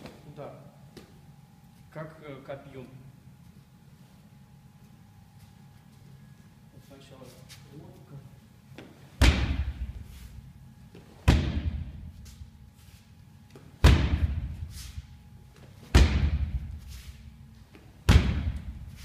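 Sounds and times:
kicks thudding on padded target: 9.2s - 10.0s, 11.2s - 12.1s, 13.8s - 14.7s, 15.9s - 16.8s, 18.0s - 18.9s.

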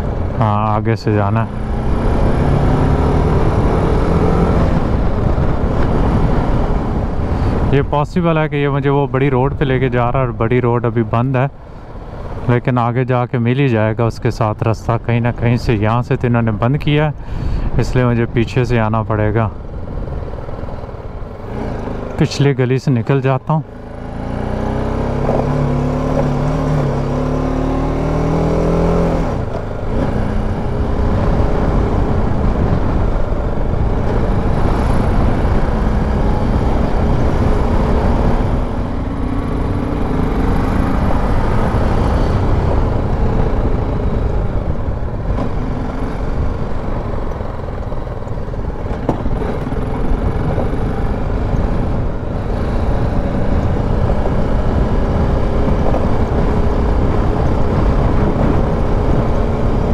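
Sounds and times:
wind and road noise: 0.0s - 59.9s
motorcycle engine running: 29.4s - 59.9s.

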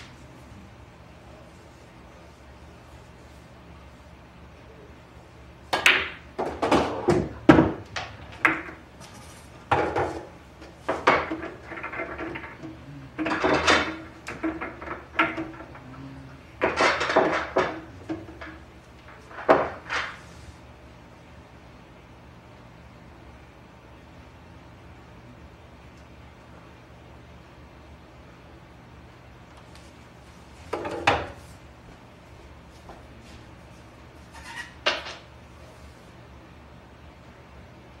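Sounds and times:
pool balls clacking: 5.7s - 20.4s, 30.6s - 31.5s, 34.5s - 35.4s.

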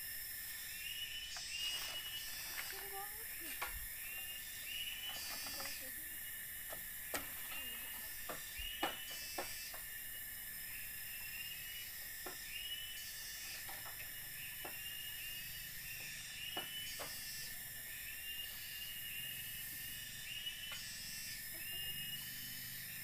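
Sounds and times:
insect chirping calls: 0.0s - 23.0s
insects hissing: 0.0s - 23.0s.

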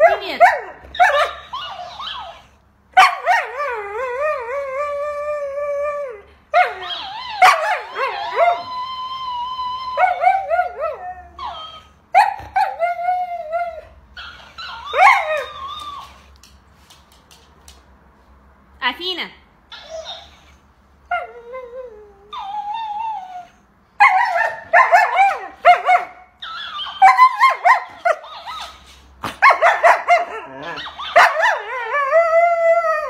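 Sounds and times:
dog yipping: 0.0s - 3.5s, 6.6s - 13.0s, 13.6s - 16.3s, 19.7s - 20.6s, 22.3s - 31.9s
dog howling: 6.6s - 11.8s.

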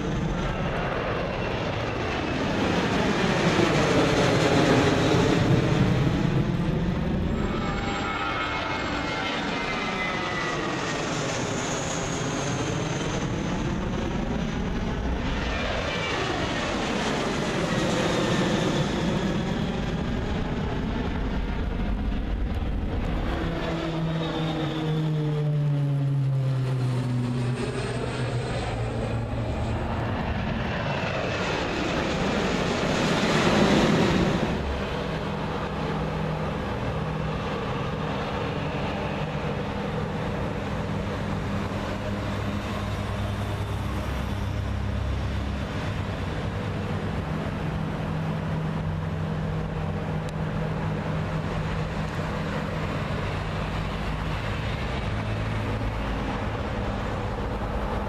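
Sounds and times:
jet airliner passing overhead: 0.0s - 58.0s
turboprop propeller drone: 0.0s - 58.0s.

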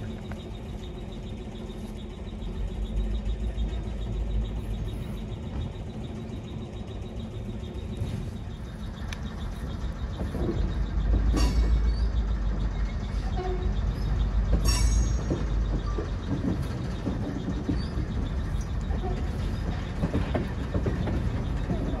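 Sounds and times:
train moving: 0.0s - 22.0s
sharp metal clanks: 11.2s - 12.2s, 14.5s - 16.4s.

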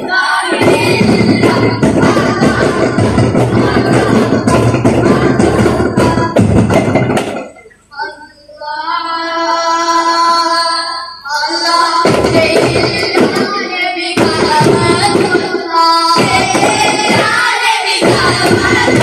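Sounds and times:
frame drums struck by hand: 0.0s - 7.8s, 16.2s - 19.0s
boys' chorus singing: 0.0s - 19.0s.

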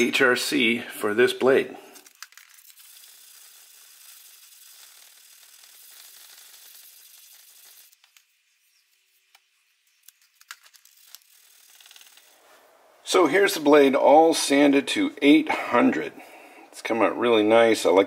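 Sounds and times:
sandpaper rubbing on knife blade: 2.7s - 8.0s.

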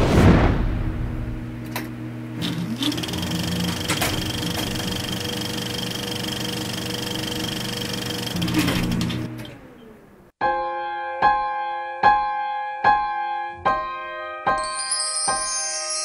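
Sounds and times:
whoosh: 0.0s - 1.6s
film projector clattering: 2.4s - 9.6s.

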